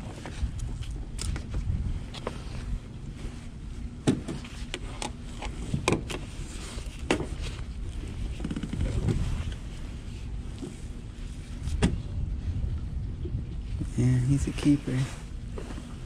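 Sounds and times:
steady low rumble: 0:00.0 - 0:16.0
soft rustling: 0:13.8 - 0:16.0.

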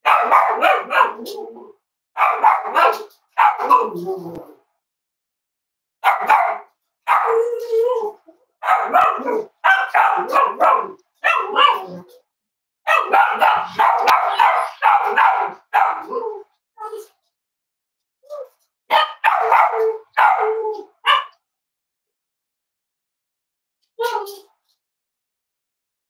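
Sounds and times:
dog barking: 0:00.0 - 0:01.6, 0:02.2 - 0:04.0, 0:06.0 - 0:07.6, 0:08.6 - 0:12.2, 0:12.9 - 0:16.4, 0:18.3 - 0:21.4.

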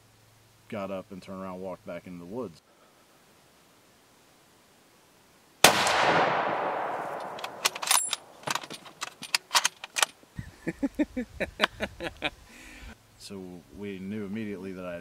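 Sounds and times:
rifle shot echoing: 0:05.6 - 0:08.5
sharp clicks and knocks: 0:07.1 - 0:10.2.

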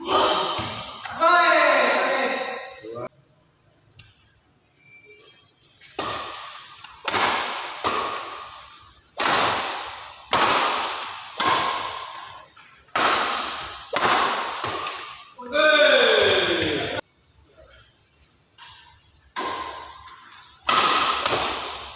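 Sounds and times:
rackets hitting shuttlecock: 0:05.8 - 0:15.3, 0:18.6 - 0:21.9.

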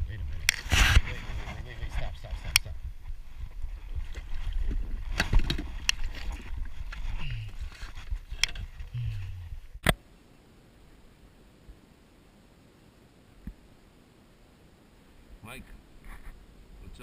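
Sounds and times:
wind on microphone: 0:00.0 - 0:09.8
water noise: 0:00.0 - 0:17.0
low hiss: 0:08.3 - 0:17.0.

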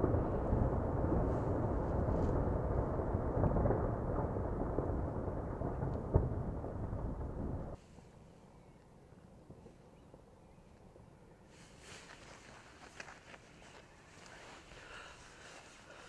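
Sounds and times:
deep volcanic rumble: 0:00.0 - 0:08.2.

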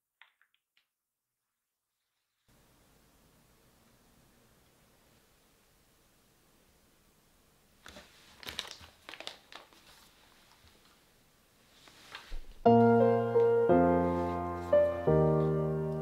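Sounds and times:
plastic bag crinkling: 0:07.8 - 0:11.0
piano music: 0:12.6 - 0:16.0.

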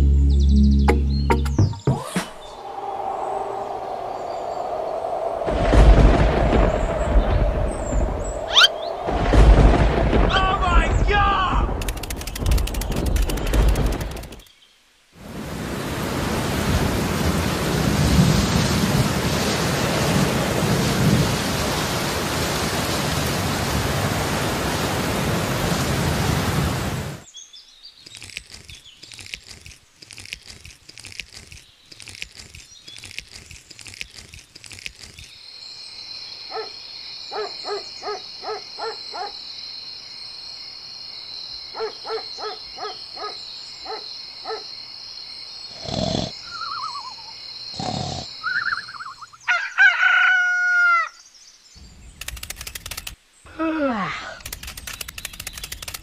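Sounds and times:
thunder rumbling: 0:02.5 - 0:14.2, 0:15.8 - 0:27.2
heavy rain: 0:02.7 - 0:11.9, 0:15.0 - 0:27.3
short quickly repeated calls: 0:08.5 - 0:08.8.

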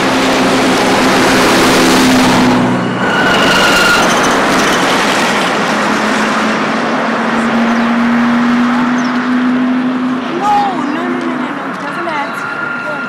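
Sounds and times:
low hum: 0:00.0 - 0:07.6
road traffic rush: 0:00.0 - 0:13.0.

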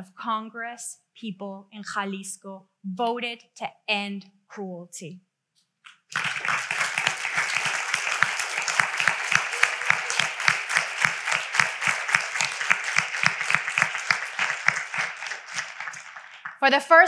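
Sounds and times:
audience applauding: 0:05.9 - 0:16.7.

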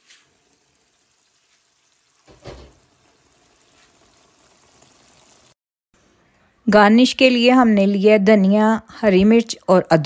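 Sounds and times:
gravy sizzling in a wok: 0:00.0 - 0:05.6
dull thump: 0:02.3 - 0:02.8.

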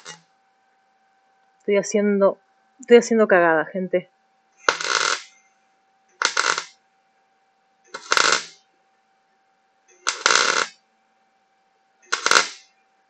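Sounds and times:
electric arc welding bursts: 0:00.0 - 0:00.2, 0:04.6 - 0:05.4, 0:06.2 - 0:06.8, 0:07.9 - 0:08.6, 0:10.0 - 0:10.8, 0:12.1 - 0:12.7.

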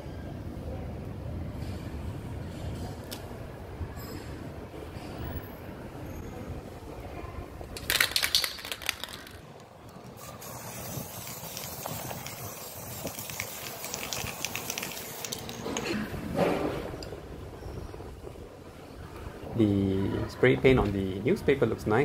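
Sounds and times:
spray paint can hissing: 0:07.8 - 0:15.9.

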